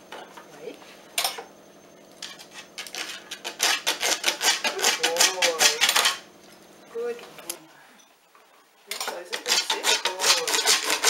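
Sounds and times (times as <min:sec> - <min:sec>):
dog claws scratching file board: 0:02.2 - 0:06.2, 0:09.1 - 0:11.0.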